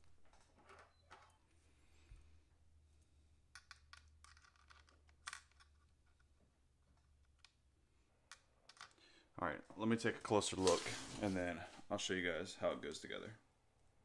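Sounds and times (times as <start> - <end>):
small metal parts clicking: 3.5 - 6.3, 8.3 - 9.0.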